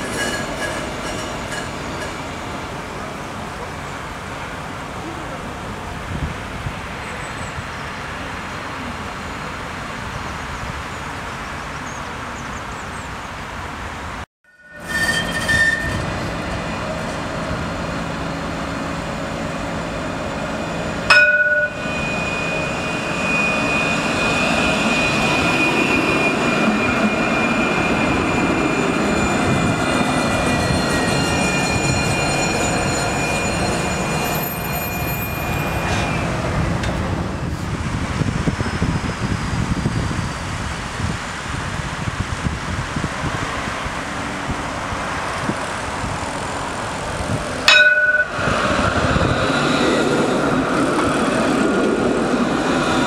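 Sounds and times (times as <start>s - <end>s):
tram wheels rumbling on rail: 0.0s - 9.0s, 14.6s - 53.0s
tram high whine: 14.5s - 53.0s.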